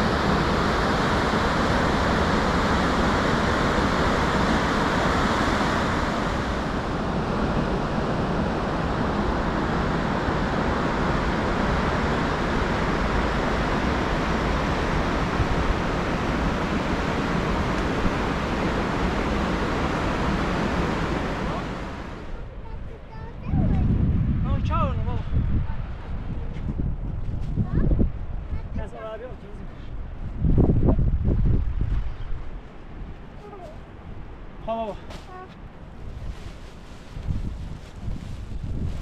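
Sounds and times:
river rushing over rapids: 0:00.0 - 0:22.3.

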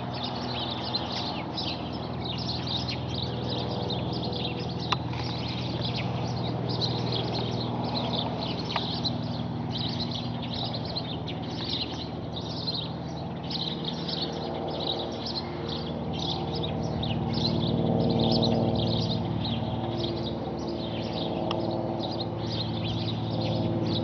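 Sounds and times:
distant propeller aircraft drone: 0:00.0 - 0:24.0
small birds chirping: 0:00.0 - 0:24.0.

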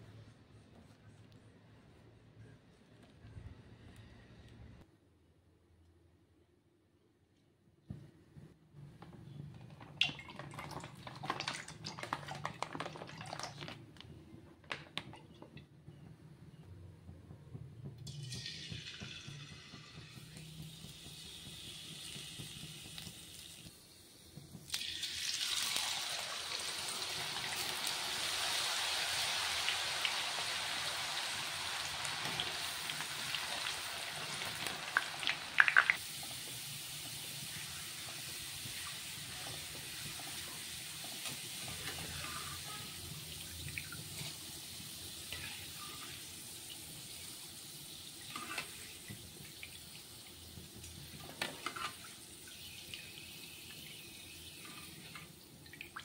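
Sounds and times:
potatoes sizzling in hot oil: 0:18.1 - 0:54.8
sharp clicks in frying oil: 0:34.4 - 0:36.3.

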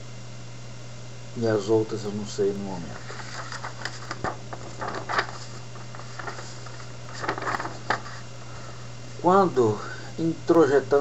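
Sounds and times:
low mains hum: 0:00.0 - 0:11.0
paper rustling: 0:02.8 - 0:08.5.

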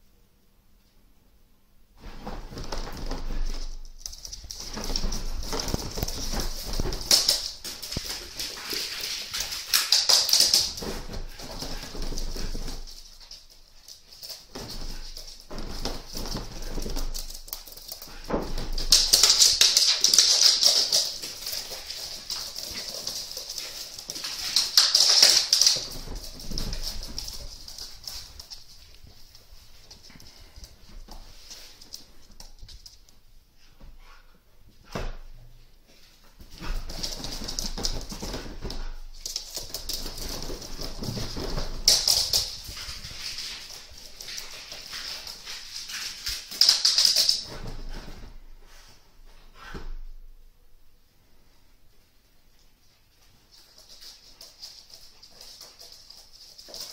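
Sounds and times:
puppy claws clicking on wooden floor: 0:03.6 - 0:18.2, 0:18.8 - 0:30.7, 0:36.6 - 0:47.6.

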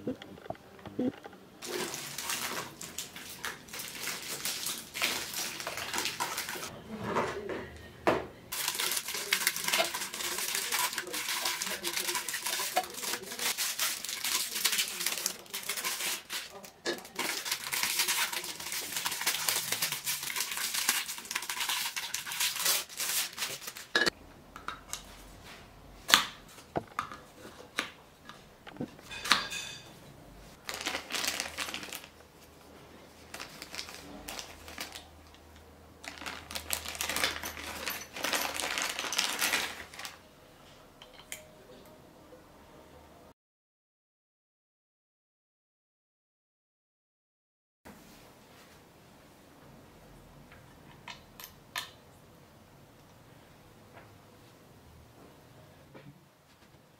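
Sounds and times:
plastic bag rustling: 0:01.6 - 0:06.7, 0:08.5 - 0:24.0, 0:30.5 - 0:35.4, 0:36.0 - 0:40.2
plastic wrap crinkling and tearing: 0:01.6 - 0:06.7, 0:08.5 - 0:24.0, 0:30.6 - 0:32.4, 0:33.1 - 0:35.4, 0:36.0 - 0:40.2.

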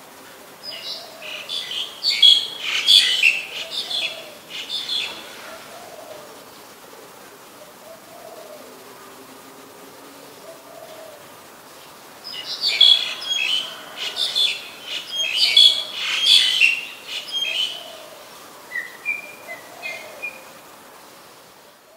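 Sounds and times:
starling chattering song: 0:00.8 - 0:06.0, 0:12.3 - 0:18.0.

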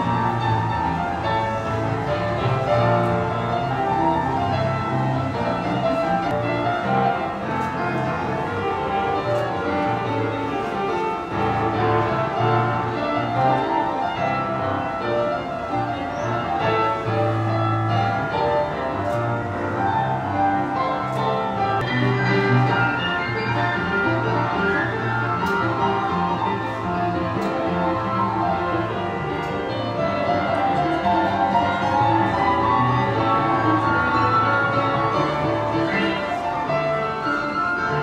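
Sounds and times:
piano duet: 0:00.0 - 0:38.0.

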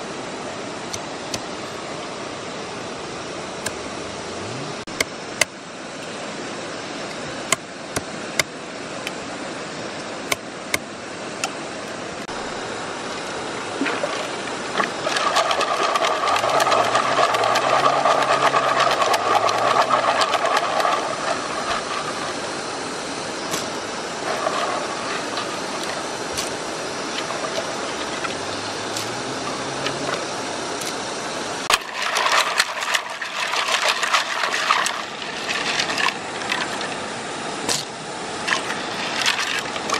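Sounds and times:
stream running over stones: 0:00.0 - 0:39.9
water sloshing: 0:12.2 - 0:37.1, 0:37.7 - 0:39.9
snail shells clattering in water: 0:15.0 - 0:22.3, 0:31.7 - 0:36.7.

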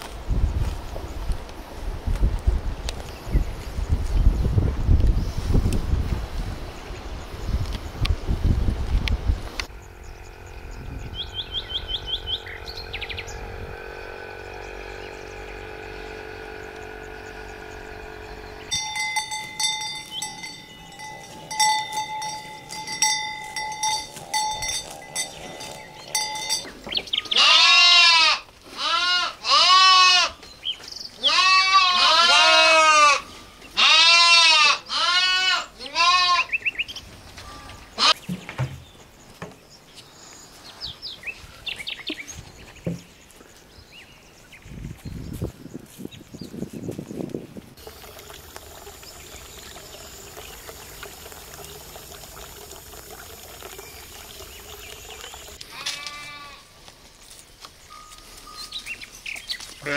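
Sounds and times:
livestock bleating: 0:27.2 - 0:30.4, 0:31.2 - 0:36.6, 0:55.6 - 0:56.7.

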